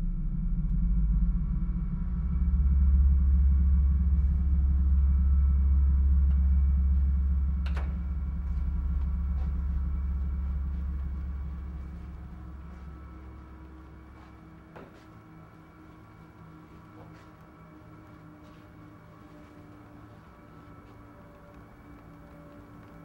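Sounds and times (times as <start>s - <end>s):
low rumbling drone: 0.0s - 23.0s.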